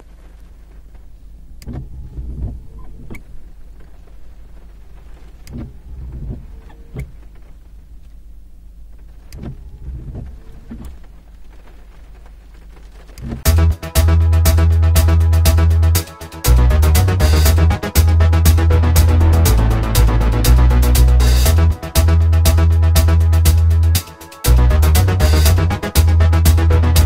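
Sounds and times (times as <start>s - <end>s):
low steady hum: 0.0s - 27.0s
windscreen wiper motor whir: 0.2s - 7.6s, 9.0s - 11.6s.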